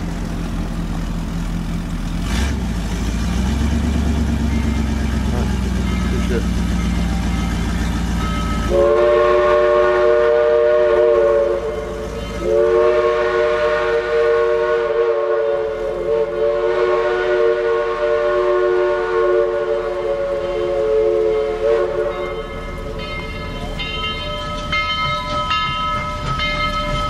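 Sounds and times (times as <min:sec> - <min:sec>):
locomotive chime horn: 0:04.4 - 0:27.0.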